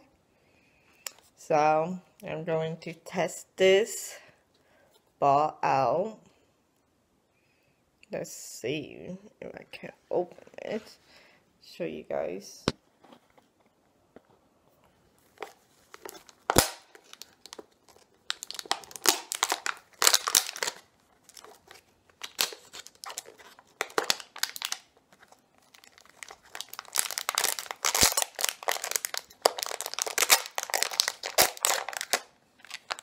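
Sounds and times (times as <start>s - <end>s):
plastic packaging crinkling and tearing: 15.2s - 33.0s.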